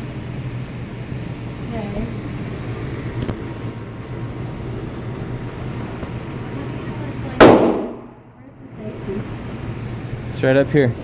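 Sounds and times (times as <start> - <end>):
steady low hum: 0.0 - 11.0
loud gunshot: 7.4 - 8.2.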